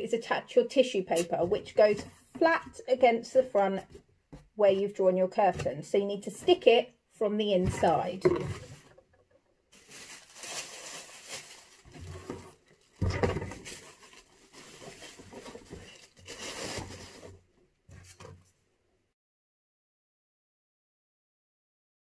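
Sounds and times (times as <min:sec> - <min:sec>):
tissue paper crinkling: 0:09.7 - 0:17.4.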